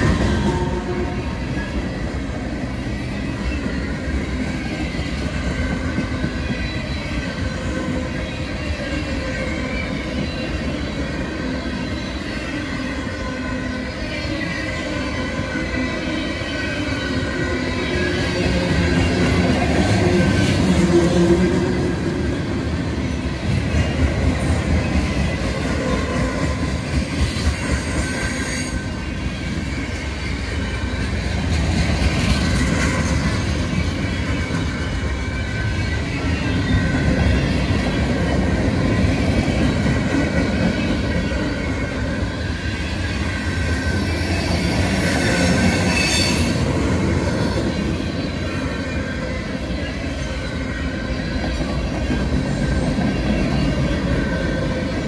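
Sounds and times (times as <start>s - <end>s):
train wheels rumbling on rails: 0.0s - 55.0s
wheel squeal: 44.0s - 51.4s.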